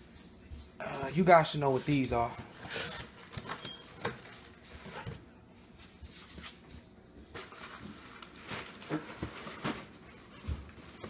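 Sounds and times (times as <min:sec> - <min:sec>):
cardboard rustling and scraping: 0:07.3 - 0:11.0.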